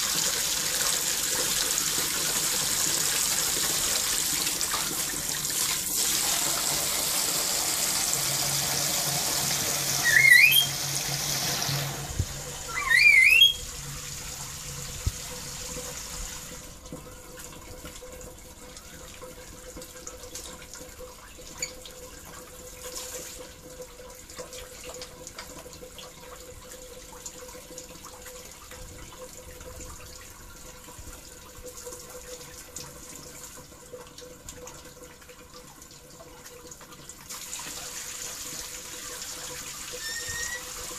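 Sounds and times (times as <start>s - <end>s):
running splashing water: 0.0s - 40.9s
bird rising chirps: 10.0s - 10.8s, 12.7s - 13.6s.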